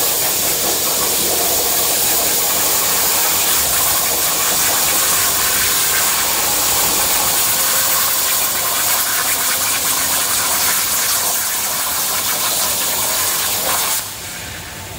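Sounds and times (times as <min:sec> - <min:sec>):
plasma cutter hissing: 0:00.0 - 0:14.7.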